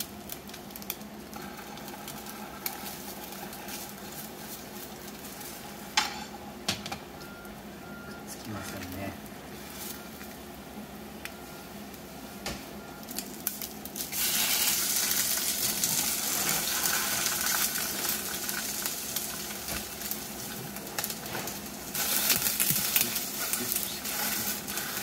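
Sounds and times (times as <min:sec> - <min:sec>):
patties sizzling in frying pan: 0:00.0 - 0:06.5, 0:12.8 - 0:25.0.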